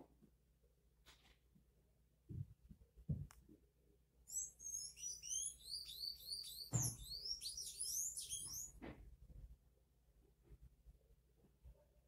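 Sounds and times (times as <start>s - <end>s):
songbird twittering: 4.3s - 8.8s.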